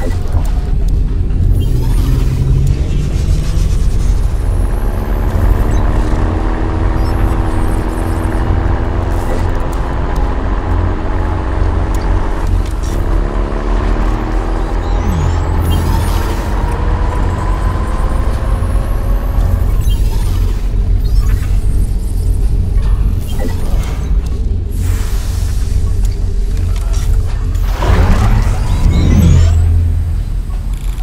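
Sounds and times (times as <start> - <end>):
diesel truck engine rumbling: 25.5 - 31.0.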